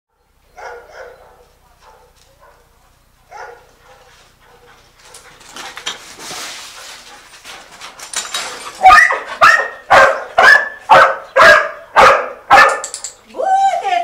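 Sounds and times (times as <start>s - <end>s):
dog barking: 0.6s - 2.7s, 3.3s - 4.7s, 8.8s - 12.8s
rustling scraping noise: 3.8s - 9.4s.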